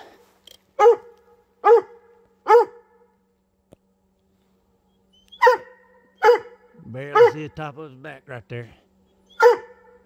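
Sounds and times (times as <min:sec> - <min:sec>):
dog barking: 0:00.8 - 0:02.9, 0:05.4 - 0:07.5, 0:09.3 - 0:10.0.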